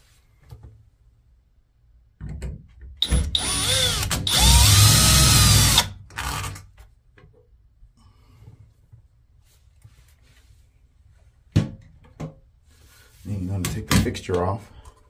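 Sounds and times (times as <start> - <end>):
power drill backing out screw: 3.0 - 6.6.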